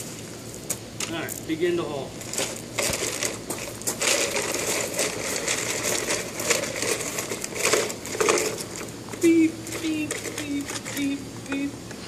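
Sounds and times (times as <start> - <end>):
gravel crunching under toy truck wheels: 2.2 - 11.1.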